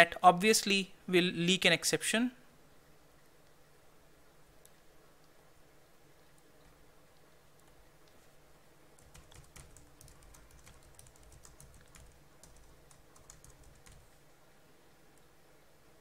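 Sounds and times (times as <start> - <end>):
faint keyboard typing: 6.2 - 14.2.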